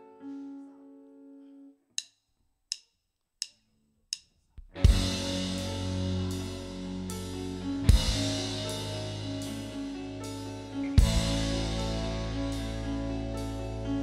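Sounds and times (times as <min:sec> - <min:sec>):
drumstick clicks: 0:02.0 - 0:04.7
keyboard chord: 0:04.8 - 0:14.0
rock band playing: 0:04.8 - 0:14.0.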